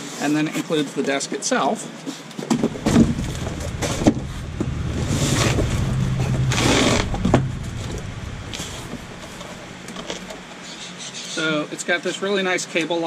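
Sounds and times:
low steady rumble: 0:02.6 - 0:10.8.

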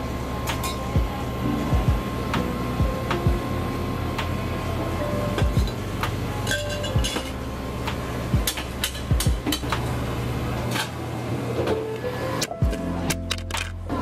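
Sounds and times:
low hum of equipment: 0:00.0 - 0:14.0
glassware and utensils clinking: 0:06.4 - 0:07.4.

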